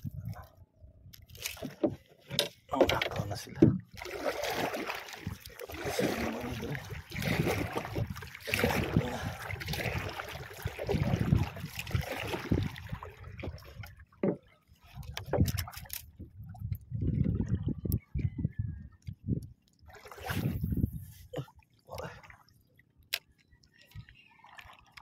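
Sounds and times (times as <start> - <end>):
wind: 0.0 - 25.0
water rushing and rumbling: 1.6 - 17.9.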